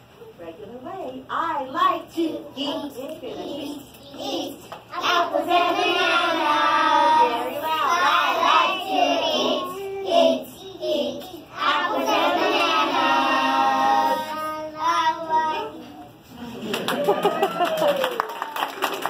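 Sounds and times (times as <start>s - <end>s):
children singing: 5.0s - 14.3s.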